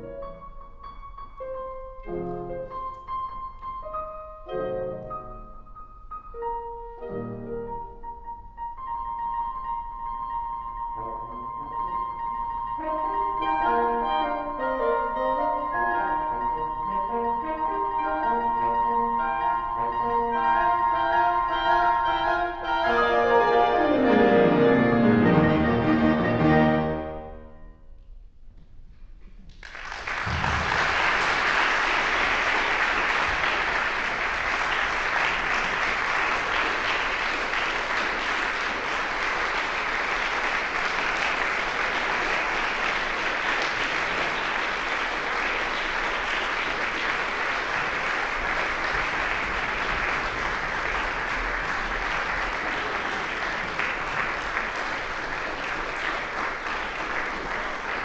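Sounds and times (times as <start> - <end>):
audience applauding: 29.5 - 58.0.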